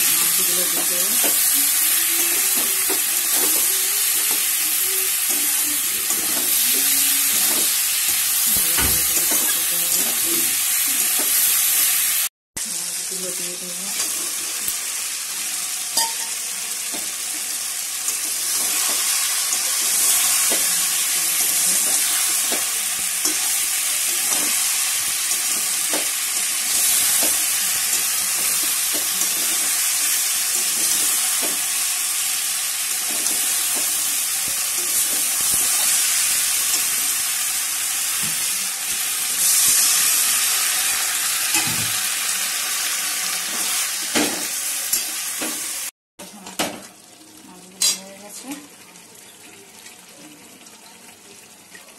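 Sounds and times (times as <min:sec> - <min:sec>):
food sizzling in hot oil: 0:00.0 - 0:51.9.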